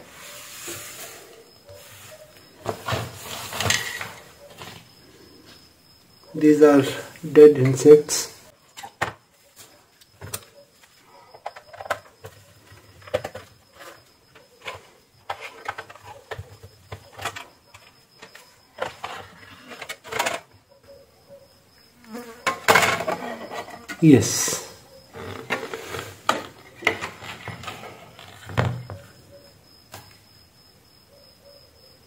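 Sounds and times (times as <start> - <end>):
plastic rattling and knocking: 11.3 - 19.2, 25.1 - 29.1.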